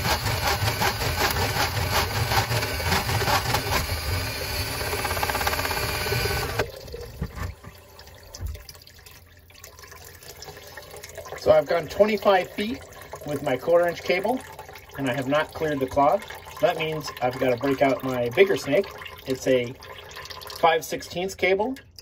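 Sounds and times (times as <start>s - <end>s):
drain snake motor whirring: 0.0s - 6.6s
water pouring into a bucket: 0.0s - 22.0s.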